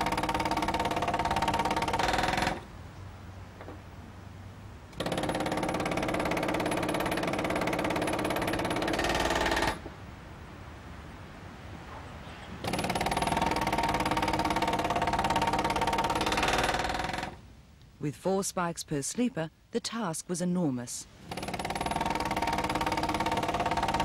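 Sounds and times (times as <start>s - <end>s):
air hammer rattling on metal: 12.6s - 17.4s.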